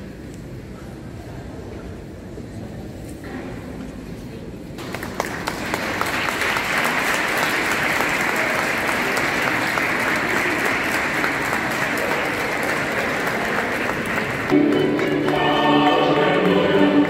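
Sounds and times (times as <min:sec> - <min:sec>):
crowd applauding: 0:04.8 - 0:17.0.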